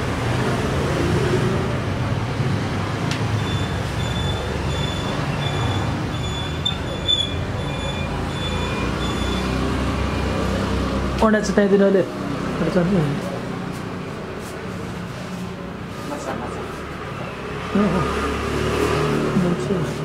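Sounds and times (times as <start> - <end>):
street traffic rumble: 0.0 - 20.0
high electronic beep: 3.4 - 10.3.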